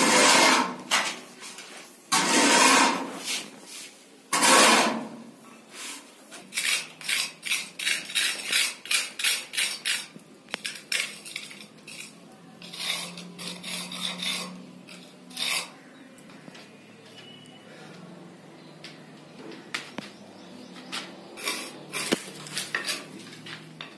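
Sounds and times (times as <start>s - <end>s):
trowel scraping plaster: 0.0s - 0.9s, 2.1s - 5.2s, 5.8s - 15.9s, 21.4s - 23.4s.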